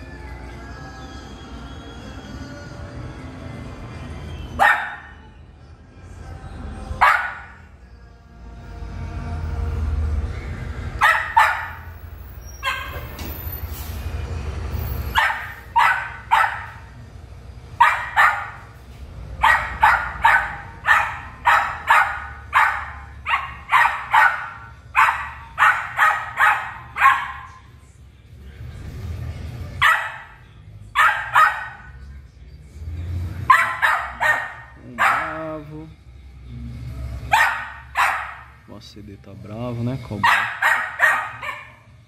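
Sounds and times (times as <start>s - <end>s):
puppy barking sharply: 4.6s - 5.2s, 7.0s - 7.6s, 11.0s - 11.9s, 12.6s - 13.1s, 15.1s - 16.9s, 17.8s - 18.7s, 19.4s - 27.7s, 29.8s - 30.4s, 31.0s - 31.9s, 33.5s - 35.6s, 37.3s - 38.6s, 40.2s - 41.9s.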